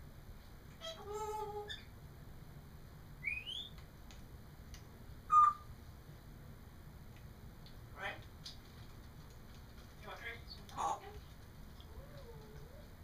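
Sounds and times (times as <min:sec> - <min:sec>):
parrot whistling and calling: 0:03.2 - 0:03.8, 0:05.3 - 0:05.7.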